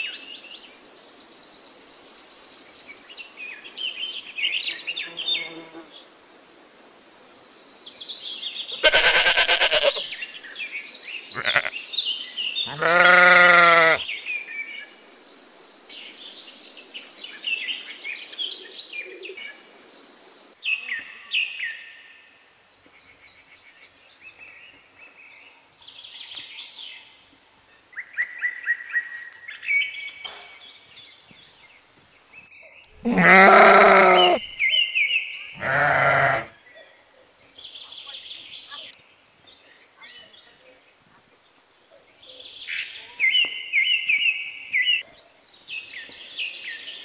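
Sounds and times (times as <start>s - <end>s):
songbirds chirping: 0.0s - 47.0s
goat bleating: 8.8s - 10.0s, 11.3s - 11.8s, 12.7s - 14.0s, 33.0s - 34.4s, 35.6s - 36.5s.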